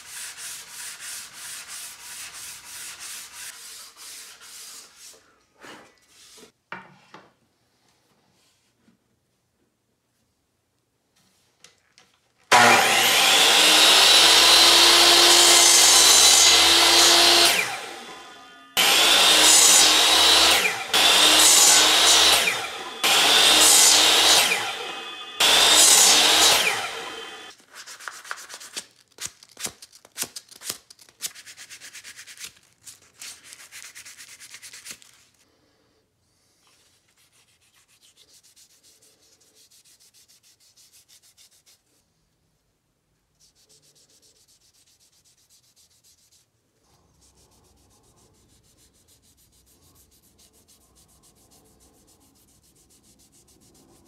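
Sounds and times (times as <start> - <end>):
hand sanding wood: 0.0 - 5.2, 12.5 - 28.8, 36.8 - 42.0, 43.4 - 46.5, 47.1 - 54.0
miter saw cutting wood: 12.5 - 27.5.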